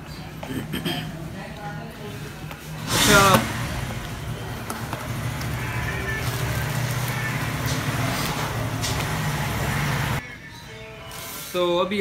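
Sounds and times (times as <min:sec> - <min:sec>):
traffic engines humming: 0:02.4 - 0:10.2.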